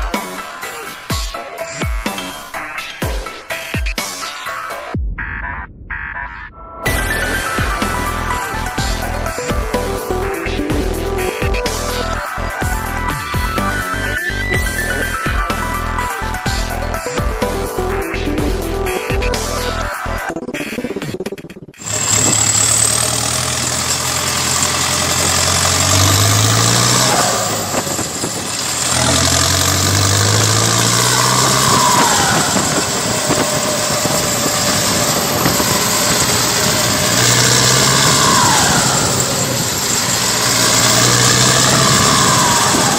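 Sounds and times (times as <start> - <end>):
tractor diesel engine revving: 6.9 - 19.9, 21.8 - 42.9.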